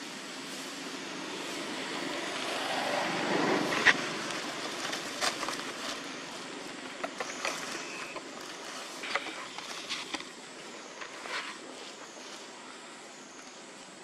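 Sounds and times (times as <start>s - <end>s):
dry leaves crackling: 0.0s - 12.5s
steady outdoor hum: 0.0s - 14.0s.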